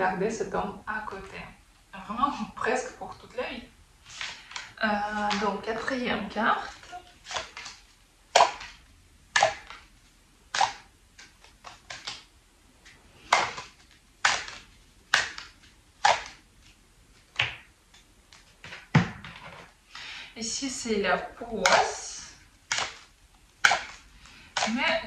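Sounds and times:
cards shuffled by hand: 6.6 - 8.8, 10.5 - 19.7, 22.6 - 25.0.

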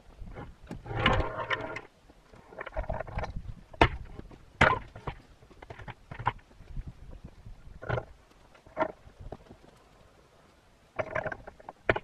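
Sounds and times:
log scraping rustle: 0.0 - 12.0
wooden knocks of log: 3.2 - 6.4.

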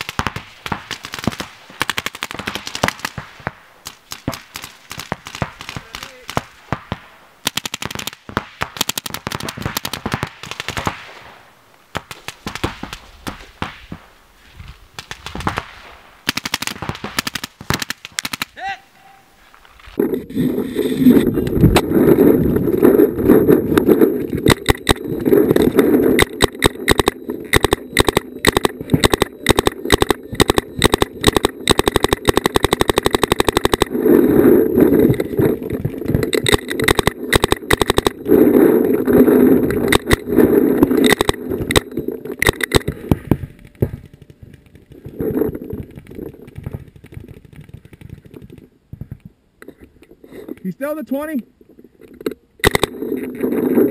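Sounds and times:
paintball markers firing rapidly: 0.0 - 11.1, 15.0 - 18.6, 23.5 - 48.7.

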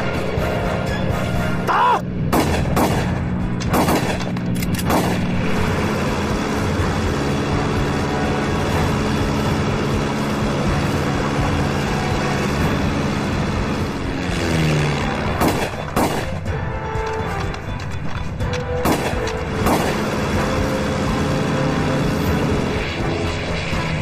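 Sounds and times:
propeller plane engine drone: 0.0 - 24.0
rifle shots: 2.3 - 5.4, 15.3 - 16.5, 18.8 - 20.1.

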